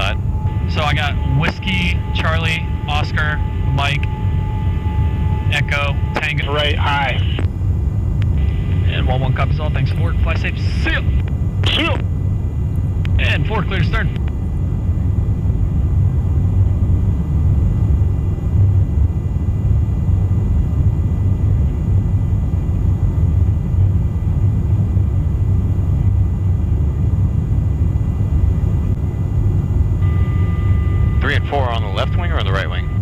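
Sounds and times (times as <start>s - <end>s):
aircraft engine drone in cabin: 0.0s - 33.0s
faint high whine: 0.0s - 33.0s.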